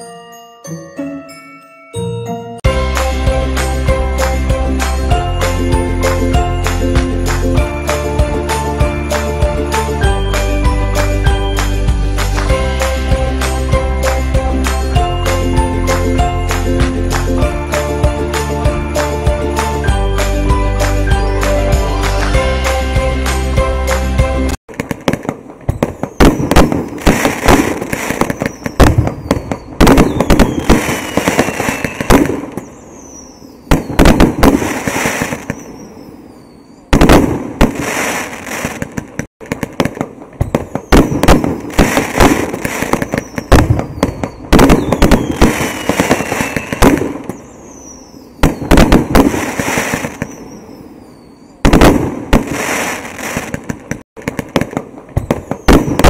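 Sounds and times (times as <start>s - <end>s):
fireworks banging and crackling: 2.9s - 36.1s, 36.9s - 50.8s, 51.6s - 56.0s
falling firework whistles: 25.7s - 39.0s, 40.4s - 53.6s, 55.2s - 56.0s.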